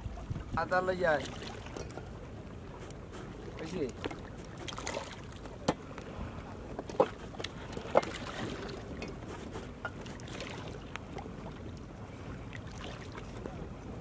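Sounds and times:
wind on microphone: 0.0s - 1.0s.

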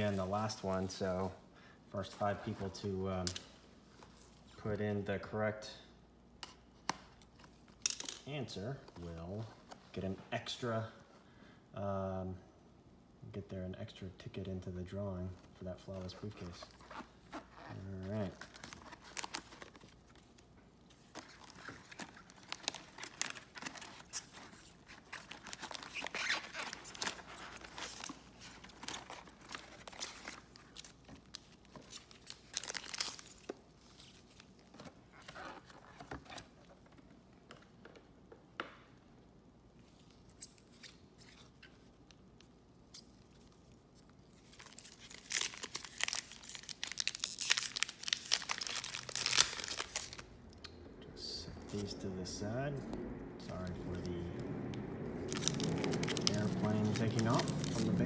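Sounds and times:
foil wrappers crinkling: 16.1s - 36.2s, 43.2s - 50.3s, 55.2s - 58.0s
foil wrapper tearing: 44.6s - 50.2s, 55.2s - 58.0s.

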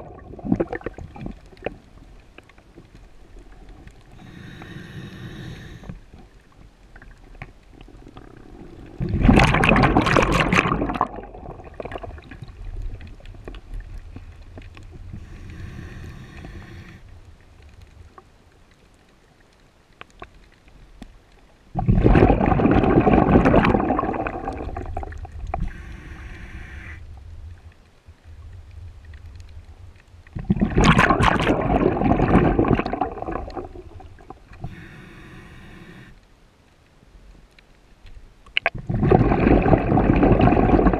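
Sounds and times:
bubbling exhalations underwater: 0.0s - 1.6s, 7.9s - 12.6s, 21.8s - 25.8s, 30.4s - 34.7s, 38.6s - 40.9s
regulator hiss of inhalation: 4.2s - 6.0s, 15.2s - 17.0s, 25.6s - 27.0s, 34.6s - 36.2s.

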